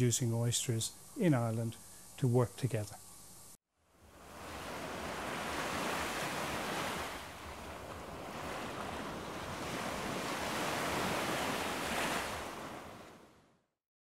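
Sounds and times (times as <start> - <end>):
sea waves washing onto shore: 4.1 - 13.3.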